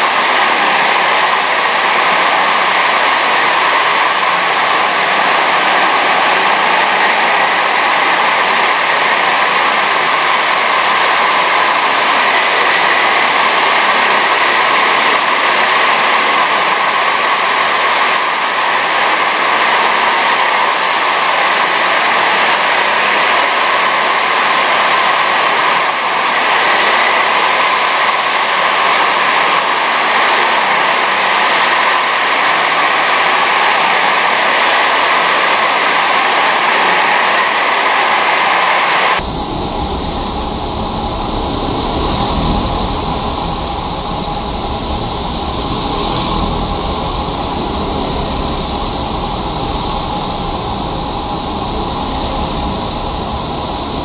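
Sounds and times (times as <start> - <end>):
kart engines racing: 39.2 - 54.0.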